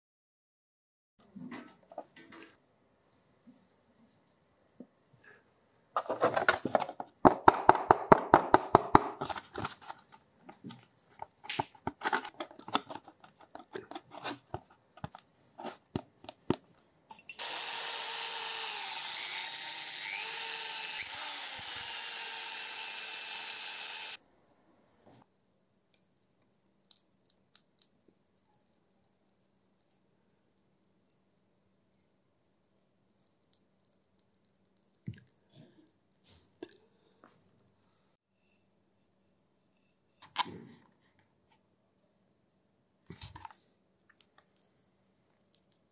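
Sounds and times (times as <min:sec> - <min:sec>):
sharp clicks and scrapes: 0:09.2 - 0:17.2
electric drill boring into steel: 0:17.4 - 0:24.2.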